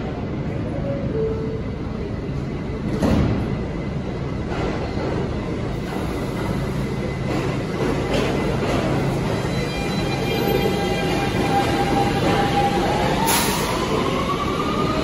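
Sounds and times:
train humming: 0.0s - 15.0s
subway doors closing thump: 2.8s - 3.8s, 4.4s - 14.4s.

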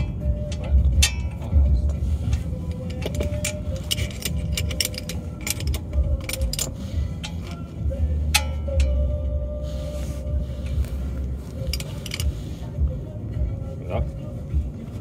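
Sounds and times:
metal tools clinking: 0.0s - 9.2s, 10.6s - 12.7s
steady low rumble: 0.0s - 15.0s.

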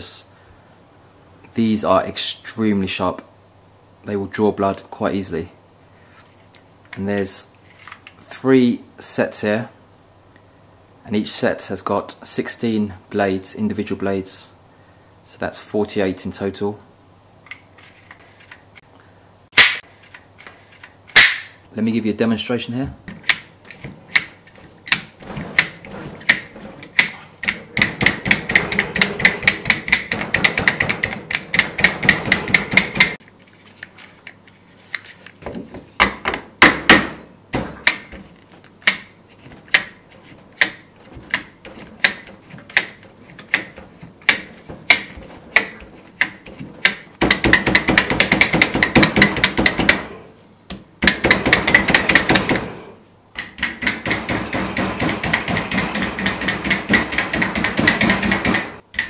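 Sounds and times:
meat tenderiser clacking: 37.8s - 50.0s.

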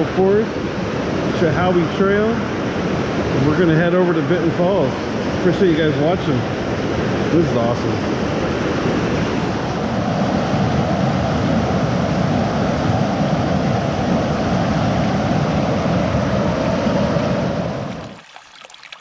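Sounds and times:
water rushing over rocks: 16.2s - 19.0s.

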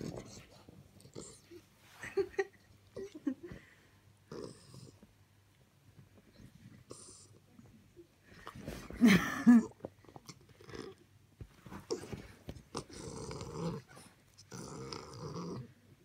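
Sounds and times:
puppy growling: 0.0s - 1.7s, 4.3s - 5.1s, 10.2s - 16.0s.

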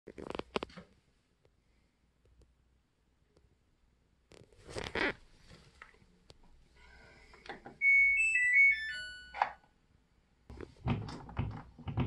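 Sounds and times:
washing machine beeping jingle: 7.8s - 9.6s.

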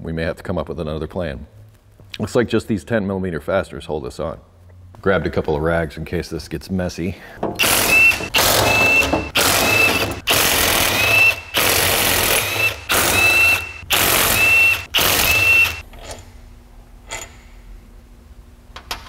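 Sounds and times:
impact wrench rattling bursts: 7.4s - 15.8s.

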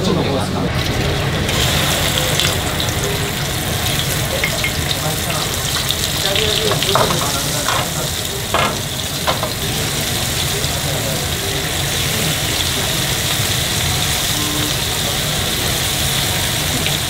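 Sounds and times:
food sizzling in hot oil: 0.7s - 17.0s
oil popping: 1.5s - 11.2s.

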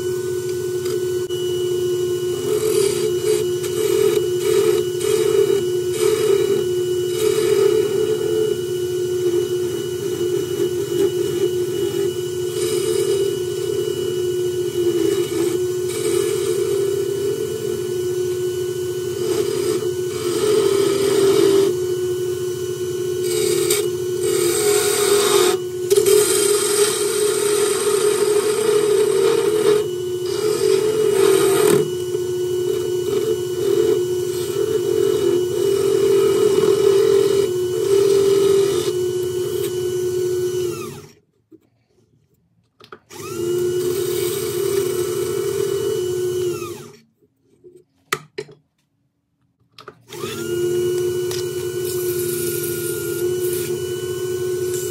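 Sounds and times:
wood lathe motor hum: 0.0s - 41.2s, 43.1s - 47.0s, 50.1s - 54.9s
turning tool rasping wood: 2.2s - 17.8s, 19.1s - 21.8s, 23.2s - 41.1s, 50.2s - 54.9s.

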